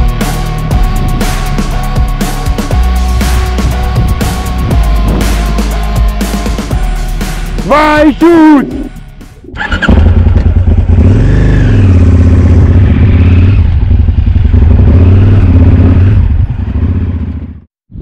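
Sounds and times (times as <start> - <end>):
motorcycle engine revving: 9.4 - 18.0.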